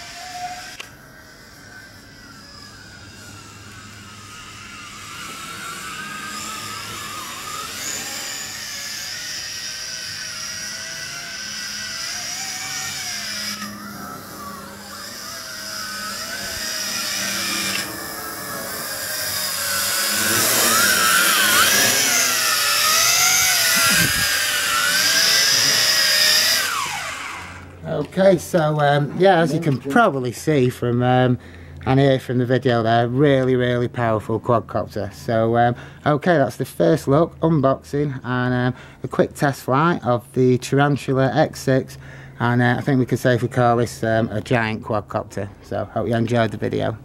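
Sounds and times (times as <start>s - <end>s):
drone propellers whining: 0.0s - 30.9s.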